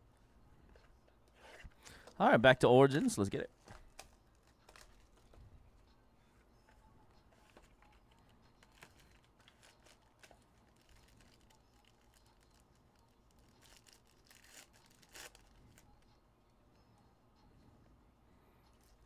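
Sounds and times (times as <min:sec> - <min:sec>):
foil wrapper crinkling and tearing: 0:08.6 - 0:15.8.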